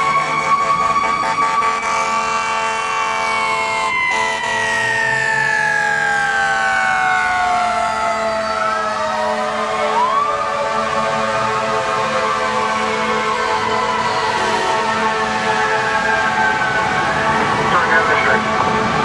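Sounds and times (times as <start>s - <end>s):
fire engine siren wailing: 0.0s - 19.0s.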